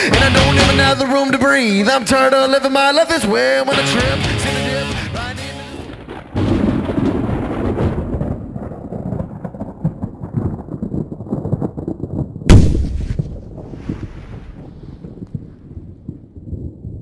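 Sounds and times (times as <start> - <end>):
loud thunderclap: 5.8 - 17.0
thunder rumbling: 5.8 - 17.0.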